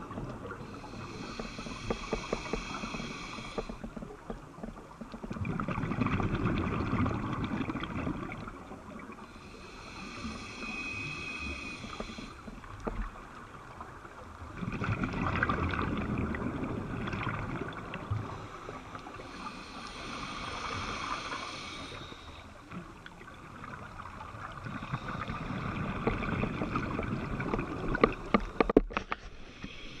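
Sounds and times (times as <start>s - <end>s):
exhaled bubbles gurgling underwater: 0.0s - 28.7s
regulator hissing inhale: 0.6s - 3.9s, 9.2s - 12.7s, 18.2s - 22.8s, 24.8s - 25.8s, 29.4s - 30.0s.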